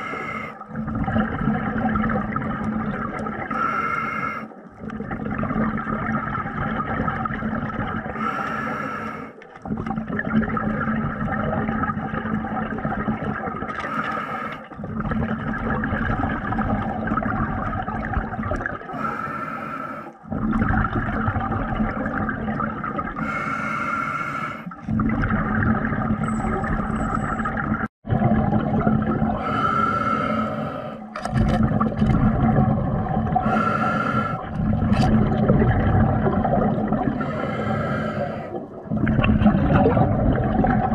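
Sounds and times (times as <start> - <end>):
diver breathing through regulator: 0.0 - 0.7, 3.5 - 4.6, 8.2 - 9.4, 13.8 - 14.8, 18.9 - 20.2, 23.2 - 24.8, 29.4 - 31.2, 33.4 - 34.6, 37.0 - 38.7
gurgling exhaled bubbles: 0.0 - 8.9, 9.6 - 19.2, 20.2 - 23.7, 24.3 - 40.9.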